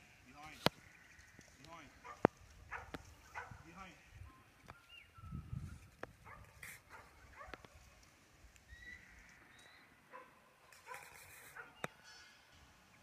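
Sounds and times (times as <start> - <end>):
dog barking: 2.0 - 3.6, 6.2 - 7.7, 10.1 - 11.9.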